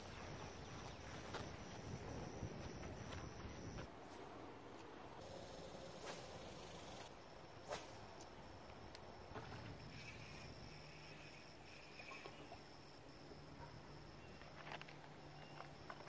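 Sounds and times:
faint insect buzzing: 5.2s - 12.9s.

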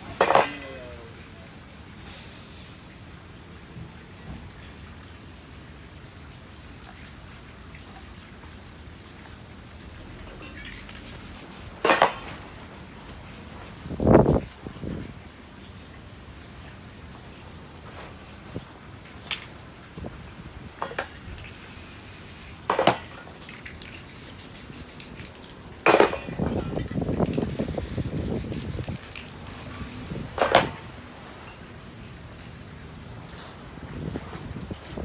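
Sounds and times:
spray can hissing: 10.7s - 11.8s, 21.4s - 22.7s, 23.6s - 25.5s, 27.2s - 30.7s.

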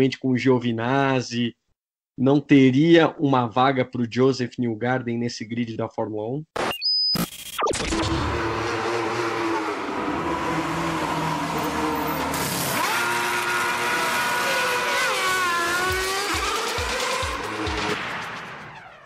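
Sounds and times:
race car engine high revs: 7.9s - 18.9s.

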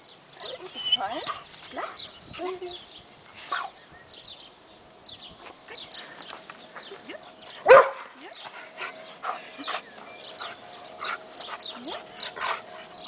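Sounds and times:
dog barking: 7.7s - 8.0s.

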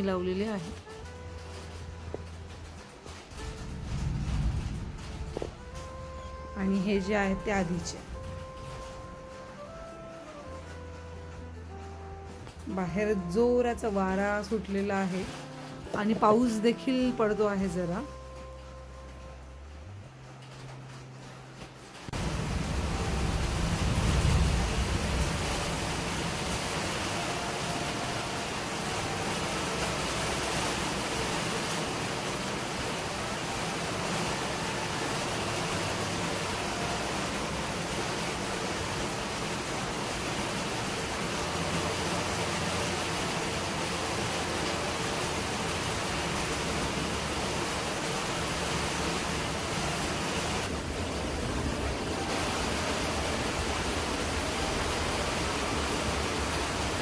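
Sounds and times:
strong wind with light rain: 2.4s - 9.2s, 22.0s - 57.0s.

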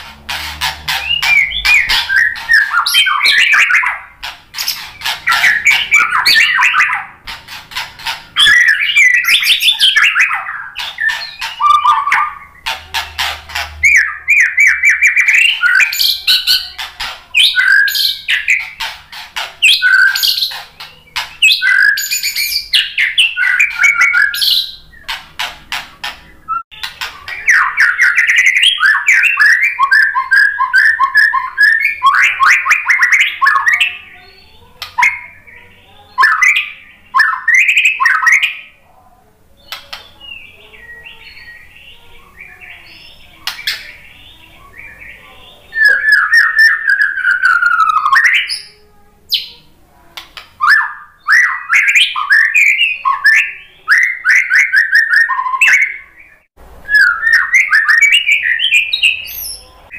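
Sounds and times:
songbird singing whistles and trills: 0.9s - 12.8s, 13.5s - 18.9s, 19.6s - 25.2s, 26.4s - 38.8s, 39.6s - 49.7s, 50.6s - 59.9s.

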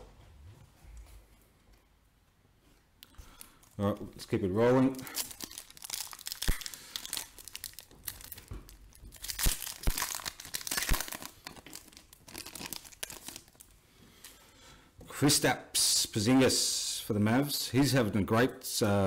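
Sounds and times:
foil wrapper crinkling and tearing: 4.9s - 13.7s.

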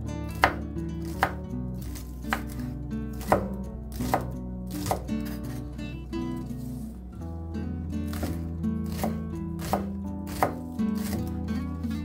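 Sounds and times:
background guitar music: 0.0s - 12.0s
knife slicing green onions: 0.3s - 5.6s, 8.1s - 11.4s
knife striking wooden cutting board: 0.3s - 5.6s, 8.1s - 11.3s.

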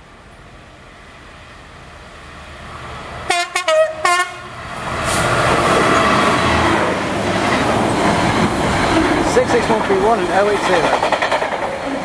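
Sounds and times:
diesel locomotive engine: 0.0s - 12.0s
freight train passing rumble: 0.0s - 12.0s
two-tone train horn blasts: 3.3s - 4.5s.

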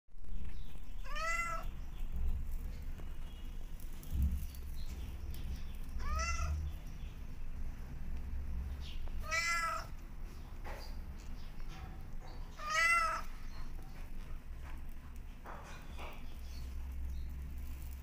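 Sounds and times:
low steady rumble: 0.2s - 18.0s
cat meowing: 1.0s - 1.7s, 6.0s - 6.6s, 9.2s - 10.0s, 12.6s - 13.3s.

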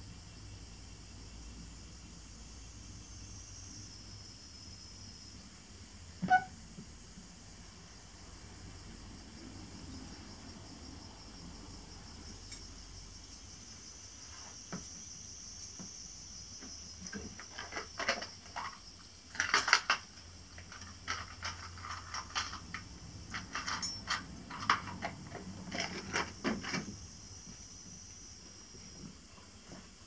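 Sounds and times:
crickets chirring: 0.0s - 30.0s
objects being handled: 17.0s - 27.0s.

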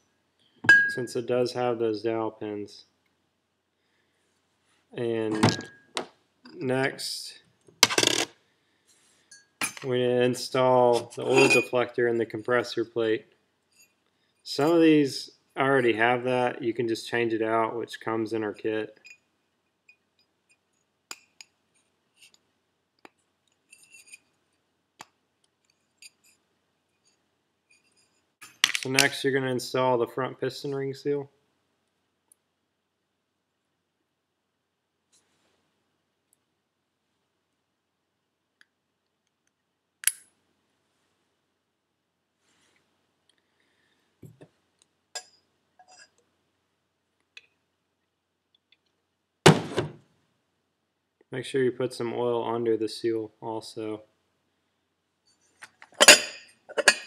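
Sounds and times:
metallic clicks: 40.0s - 40.3s.

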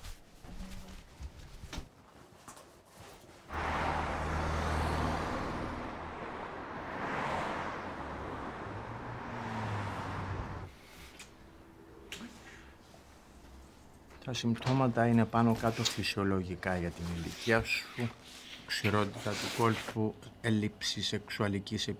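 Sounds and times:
highway traffic rushing past: 3.5s - 12.8s.

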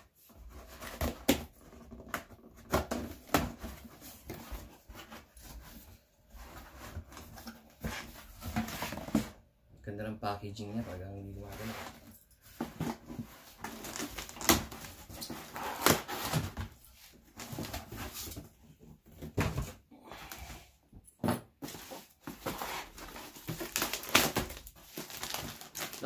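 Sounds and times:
packaging crinkling and tearing: 13.6s - 16.5s, 22.4s - 26.0s.

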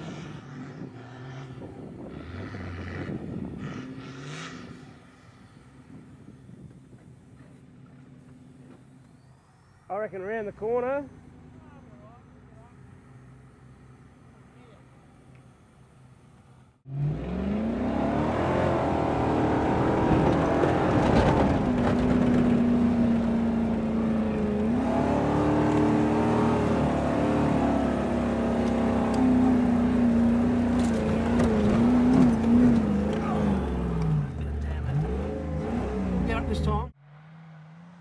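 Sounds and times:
off-road vehicle engine revving: 0.0s - 5.9s, 16.8s - 38.0s.

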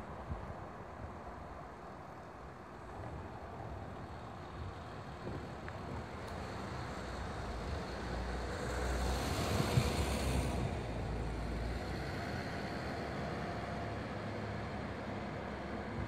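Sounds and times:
street noise low rumble: 0.0s - 16.0s
vehicle passing by: 6.4s - 14.7s.

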